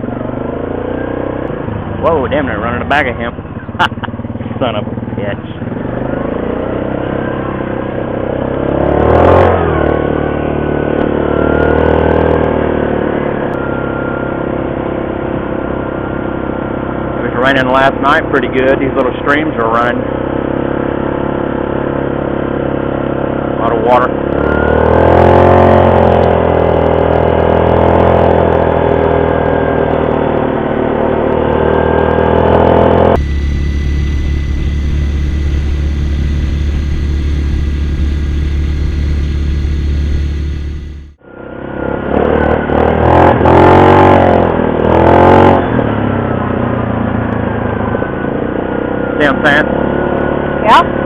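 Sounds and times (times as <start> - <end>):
atv engines revving: 0.0 - 51.0
low steady engine drone: 0.0 - 51.0.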